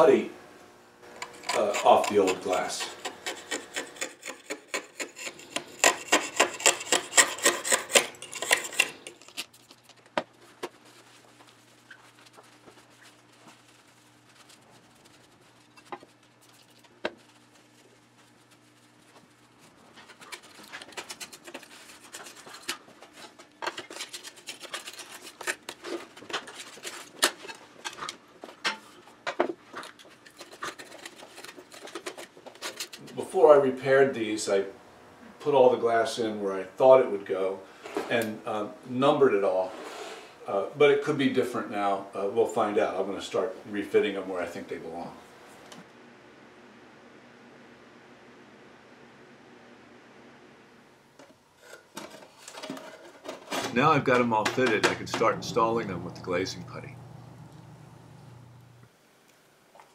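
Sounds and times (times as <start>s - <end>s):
scraper rasping on glass: 1.2s - 9.6s, 11.8s - 27.6s
faint low hum: 53.6s - 59.9s.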